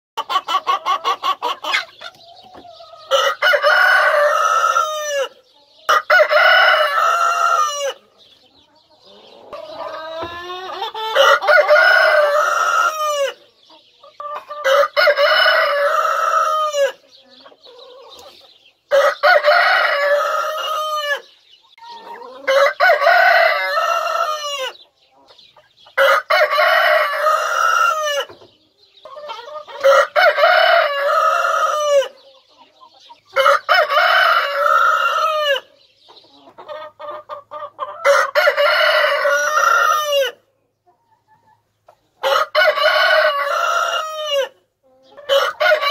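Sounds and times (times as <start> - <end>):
hens clucking: 0.2 - 45.9
rooster crowing: 3.1 - 5.3, 11.0 - 13.4, 18.9 - 21.3, 29.8 - 32.1, 42.2 - 44.5, 45.3 - 45.9.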